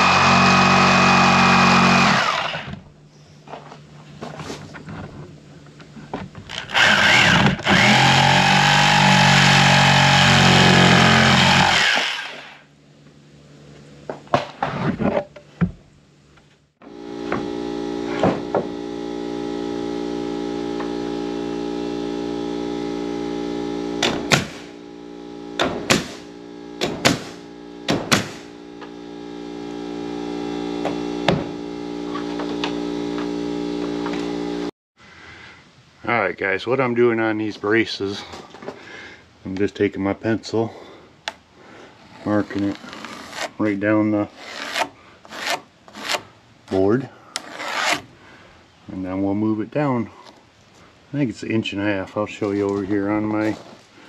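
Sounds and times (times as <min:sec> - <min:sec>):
jigsaw cutting board: 0:00.0 - 0:02.8, 0:06.5 - 0:12.6
air compressor droning: 0:16.8 - 0:34.7
nail gun shots: 0:24.0 - 0:24.7, 0:25.6 - 0:26.2, 0:26.8 - 0:28.5.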